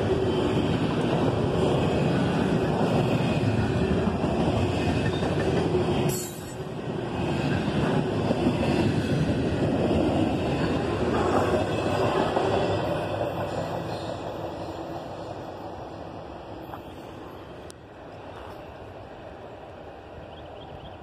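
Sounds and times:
freight train wheels clattering: 0.0s - 14.7s.

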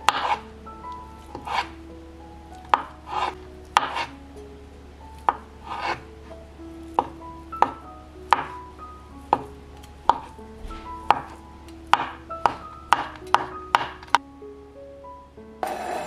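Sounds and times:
background music of held notes: 0.0s - 16.0s
knife chopping on cutting board: 0.1s - 0.4s, 1.3s - 1.7s, 2.7s - 4.1s, 6.9s - 8.6s, 10.1s - 14.2s.

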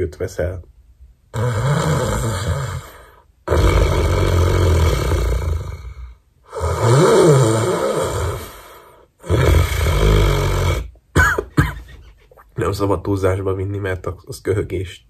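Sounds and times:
man faking snores: 1.3s - 11.7s.

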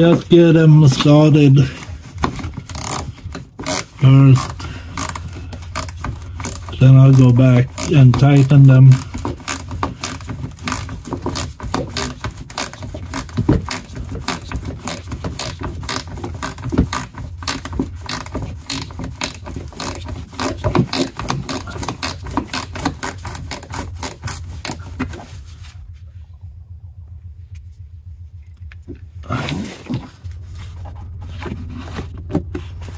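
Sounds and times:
hand tool driving screws: 0.0s - 25.2s
low steady hum: 0.0s - 32.9s.

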